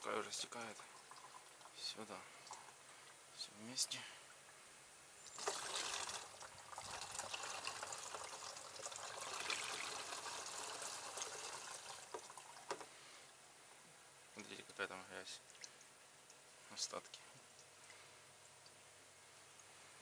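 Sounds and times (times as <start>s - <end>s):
liquid trickling into funnel: 0.3s - 3.2s, 5.2s - 12.8s.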